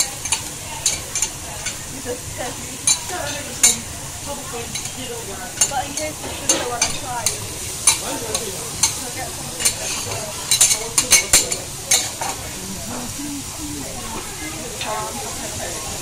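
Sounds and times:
food sizzling on griddle: 0.0s - 16.0s
metal spatulas clacking and scraping: 5.6s - 9.0s, 9.6s - 12.3s.

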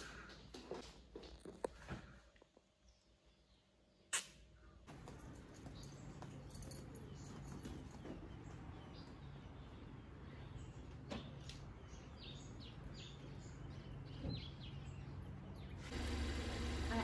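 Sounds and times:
sharp click: 4.1s - 4.4s.

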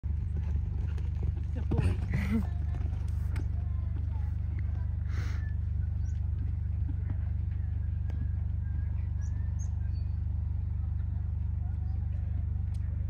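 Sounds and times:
low pulsing mechanical drone: 0.0s - 13.0s
faint bird chirps: 8.6s - 10.4s.

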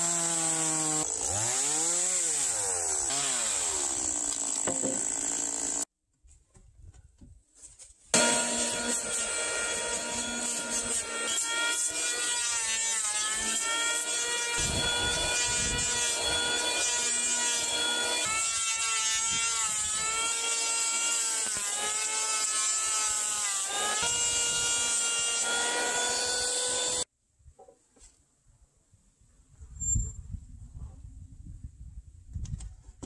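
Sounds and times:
electric hand planer cutting wood: 0.0s - 5.9s, 8.2s - 27.1s.

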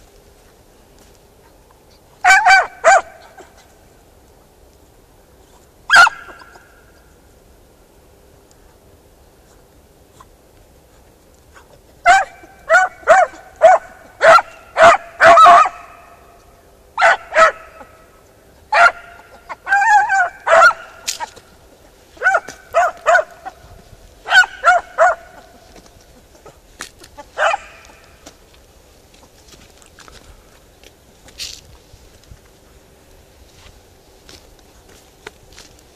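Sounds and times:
hounds yelping bays: 2.2s - 3.8s, 5.9s - 7.1s, 11.5s - 16.2s, 17.0s - 21.4s, 22.1s - 28.1s.

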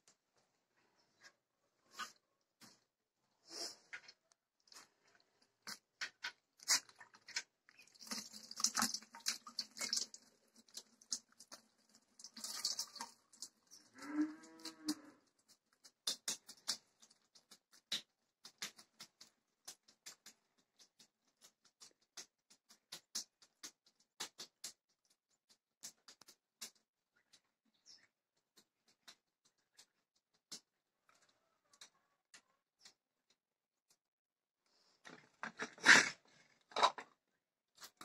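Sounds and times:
hands squelching in buttermilk: 3.5s - 13.9s, 15.3s - 31.4s
drips falling into liquid: 4.6s - 27.4s
cow mooing: 14.0s - 15.2s.

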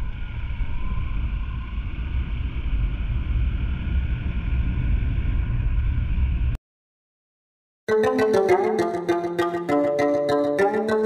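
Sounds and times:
wind rumble on microphone: 0.0s - 6.6s.

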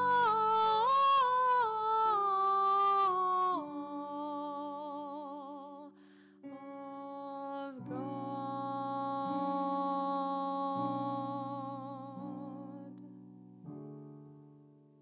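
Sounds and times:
short breath: 6.0s - 6.4s.

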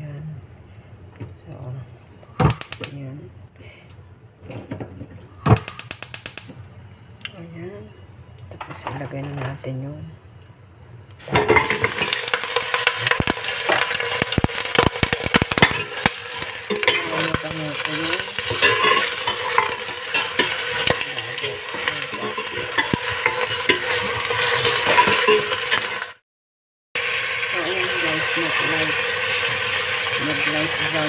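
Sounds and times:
meat sizzling in a pot: 2.2s - 3.0s, 5.4s - 6.6s, 9.8s - 26.2s, 27.0s - 31.0s
spatula scraping a metal pot: 11.3s - 26.0s.

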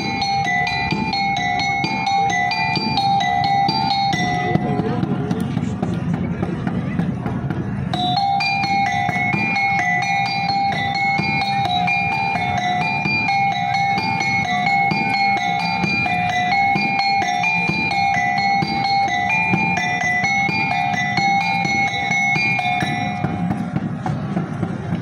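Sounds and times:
metallic bell-like two-note pattern: 0.0s - 5.9s, 7.8s - 24.9s
low drum beat: 2.8s - 16.1s.

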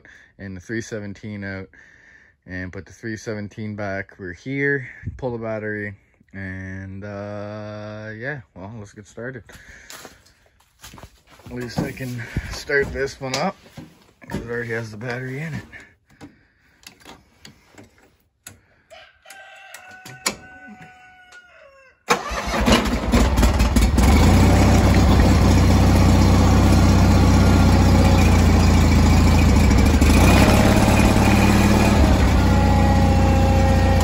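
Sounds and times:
tractor engine starting and running: 10.9s - 18.6s, 22.1s - 34.0s.

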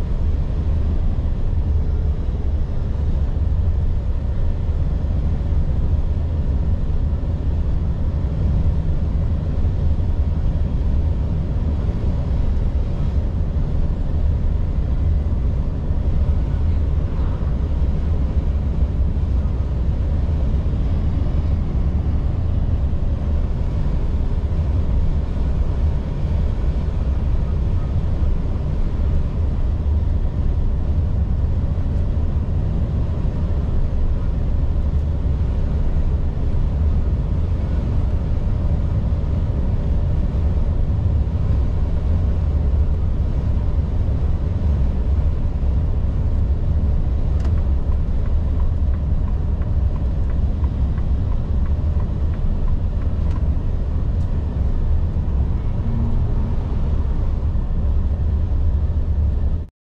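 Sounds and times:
truck diesel engine rumble: 0.0s - 59.6s
road noise: 0.0s - 59.7s.

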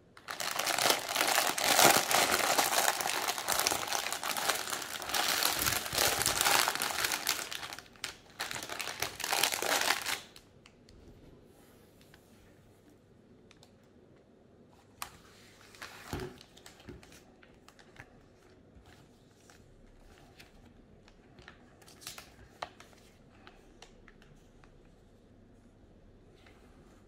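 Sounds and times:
plastic bags and paper rustling: 0.2s - 10.4s.

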